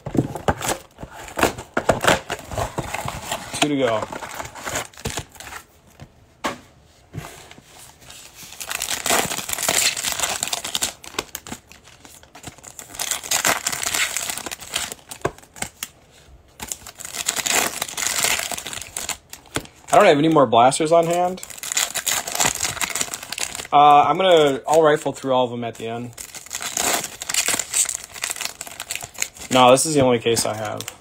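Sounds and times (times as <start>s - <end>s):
foil packs crinkling and tearing: 8.5s - 15.9s, 16.6s - 31.0s.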